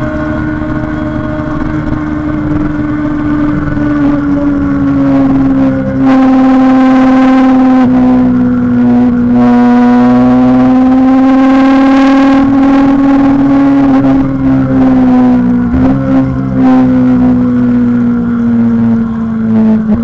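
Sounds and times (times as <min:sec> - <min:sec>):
motorcycle engine at high revs: 0:00.0 - 0:20.0.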